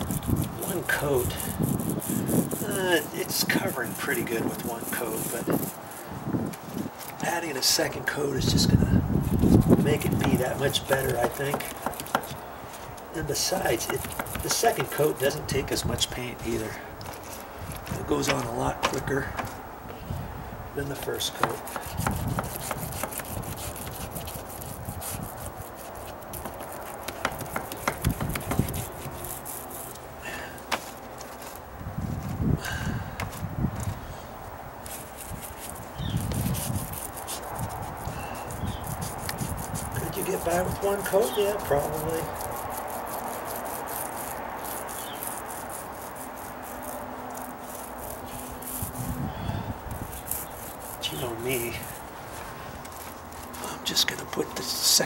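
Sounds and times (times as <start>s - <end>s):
paint roller wet rubbing: 0.0s - 7.8s, 9.2s - 19.6s, 20.8s - 31.7s, 34.8s - 55.0s
sharp knocks: 11.2s - 12.4s.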